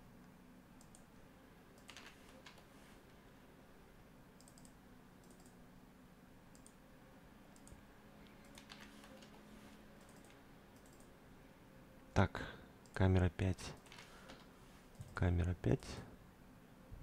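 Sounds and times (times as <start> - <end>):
faint room hum: 0.0 - 17.0
soft computer clicks: 0.2 - 1.1, 1.7 - 2.7, 4.4 - 5.6, 6.5 - 6.8, 7.5 - 9.4, 10.0 - 11.1, 13.8 - 15.2.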